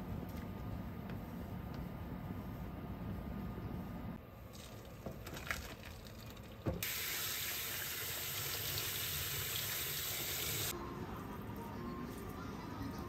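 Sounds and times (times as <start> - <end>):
noodles and water poured into colander: 4.6 - 6.6
kitchen tap running water: 5.7 - 10.7.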